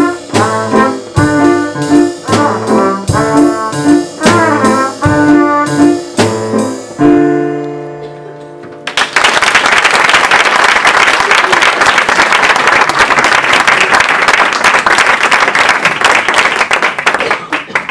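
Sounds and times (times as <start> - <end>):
band with trumpet: 0.0 - 7.3
audience applauding: 8.8 - 17.9.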